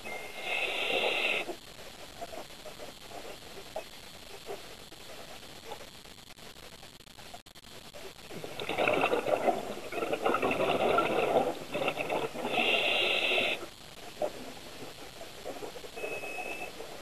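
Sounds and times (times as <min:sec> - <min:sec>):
scuba regulator bubbling and hissing: 0:00.0 - 0:01.6, 0:08.3 - 0:17.0.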